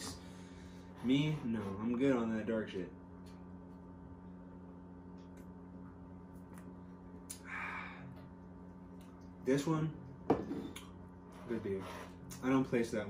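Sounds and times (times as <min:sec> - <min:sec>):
steady low hum: 0:00.0 - 0:13.0
breathy exhale: 0:07.4 - 0:08.2.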